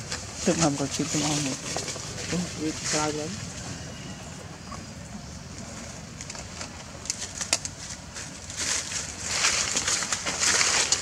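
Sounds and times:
footsteps on dry leaves: 6.4s - 11.0s.

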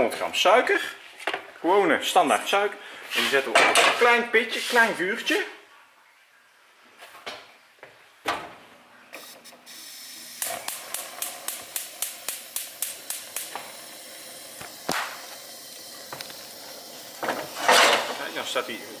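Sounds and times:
gas hissing: 9.2s - 19.0s
spark igniter clicking: 9.7s - 17.3s.

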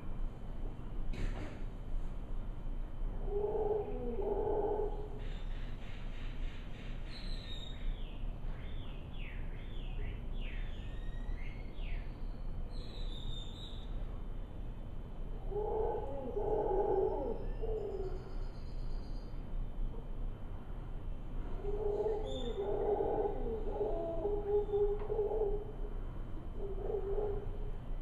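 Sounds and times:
howler monkeys calling: 3.1s - 8.1s, 15.2s - 20.2s, 21.4s - 28.0s.

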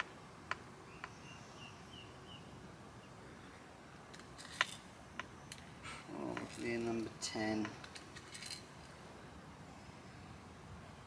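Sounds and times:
bird chirping: 0.0s - 3.7s.

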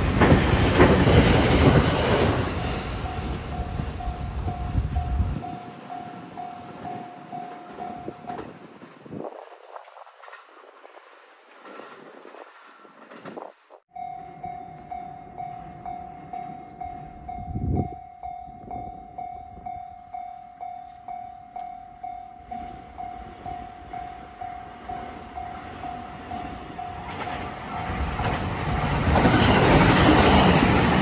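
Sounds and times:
electric train passing: 0.0s - 31.0s
level-crossing warning bell: 0.8s - 8.5s, 13.9s - 27.7s.

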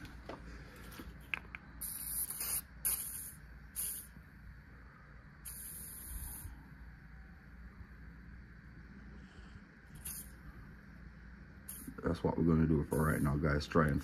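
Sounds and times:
aerosol can spraying: 1.8s - 4.2s, 5.4s - 6.5s, 9.9s - 10.4s, 11.6s - 12.2s, 12.9s - 13.5s.

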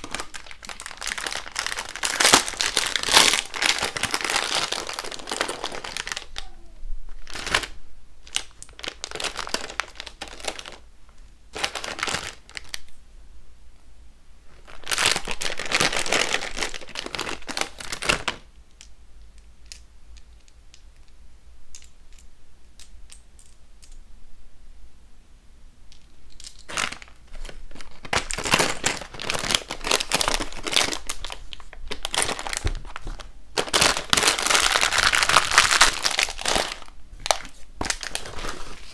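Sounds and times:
plastic bag crinkling: 0.0s - 10.8s, 11.5s - 12.9s, 14.5s - 18.4s, 26.4s - 38.9s.

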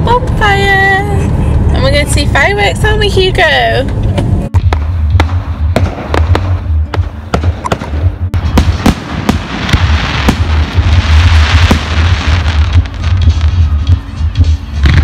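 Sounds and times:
fireworks bangs: 4.6s - 15.0s.

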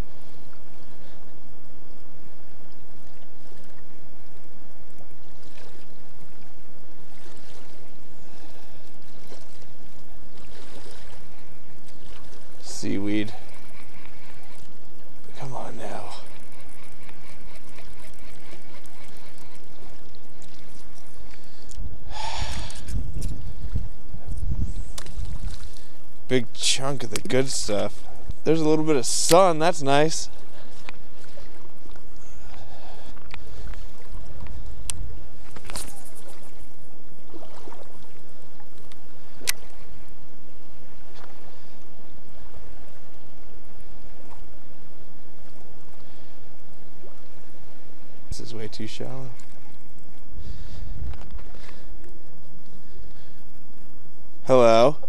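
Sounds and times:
wind buffeting microphone: 0.0s - 54.5s
choppy lake water: 0.0s - 55.0s
fishing reel whirring: 12.4s - 23.5s.

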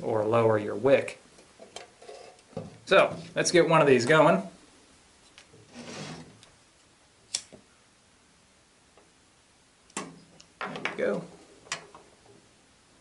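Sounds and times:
lantern metallic clicks: 7.3s - 7.6s.

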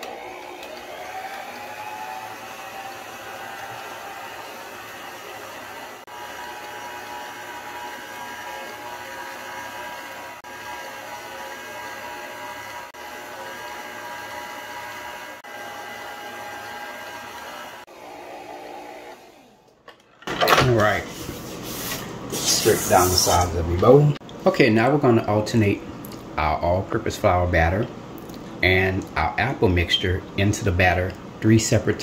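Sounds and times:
stand mixer motor whining: 0.0s - 19.8s.

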